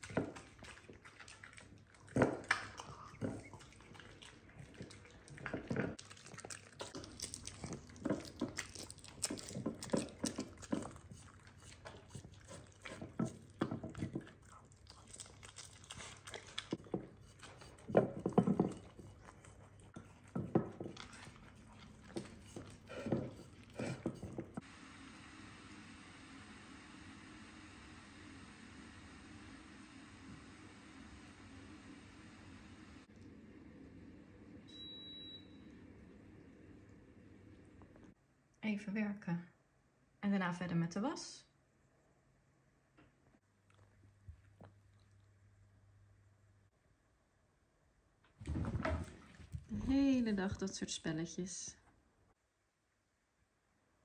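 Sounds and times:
dog chewing and biting: 0.0s - 24.6s.

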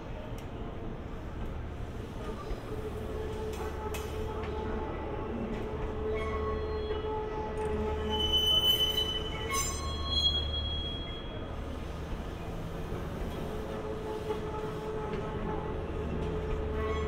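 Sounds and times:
train rumble and hum: 0.0s - 17.0s.

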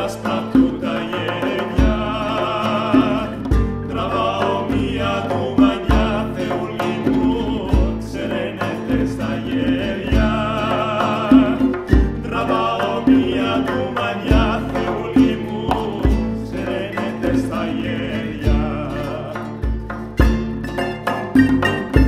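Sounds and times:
frame drum strokes: 0.0s - 17.8s, 18.4s - 22.0s
two men singing: 0.0s - 20.0s
classical guitar: 0.0s - 22.0s
plucked string instrument: 0.0s - 22.0s.

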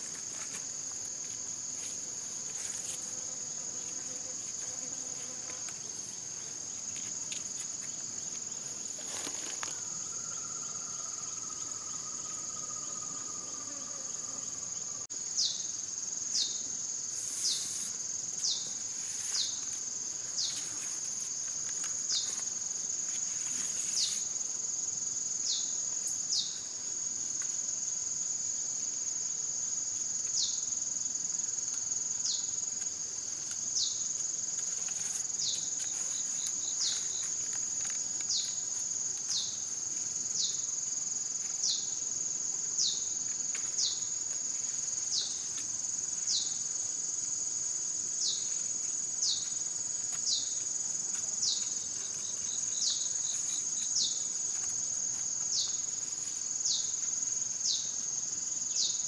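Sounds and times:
high-pitched insect drone: 9.0s - 26.6s.

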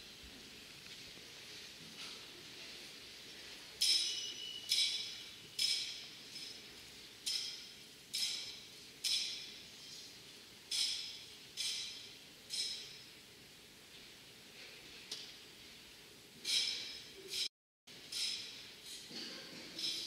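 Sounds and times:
small metal bells struck: 3.8s - 6.7s.

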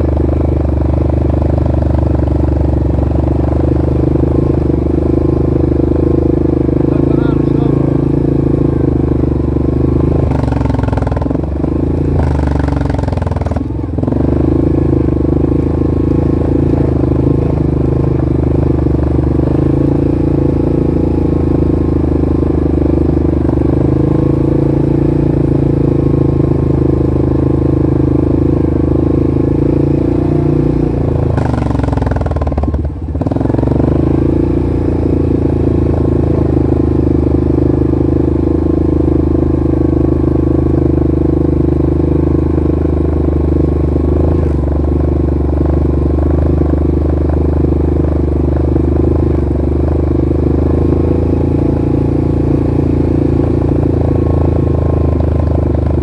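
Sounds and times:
vehicle engine running: 0.0s - 56.0s.

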